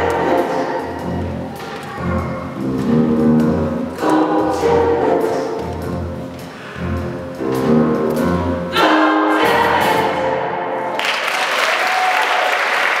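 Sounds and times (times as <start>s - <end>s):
choir singing gospel song: 0.0s - 10.9s
audience applause: 10.9s - 13.0s.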